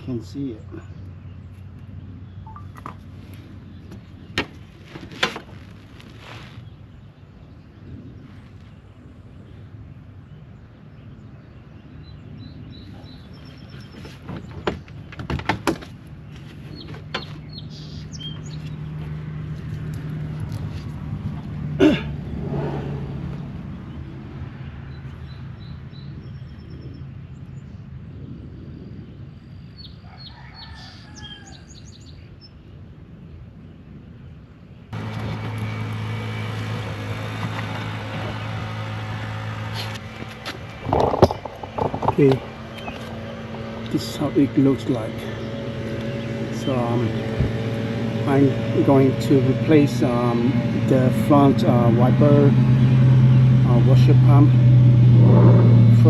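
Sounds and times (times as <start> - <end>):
birds chirping: 0.0 - 56.0
steady low hum: 34.9 - 56.0.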